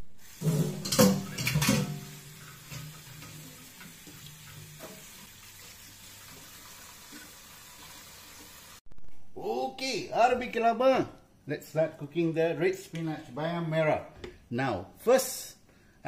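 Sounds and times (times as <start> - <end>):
tap running into metal sink: 0.4 - 5.2.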